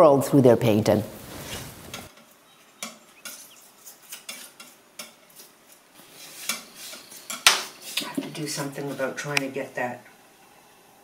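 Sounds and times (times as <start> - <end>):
tool scraping paint on palette: 2.8 - 9.3.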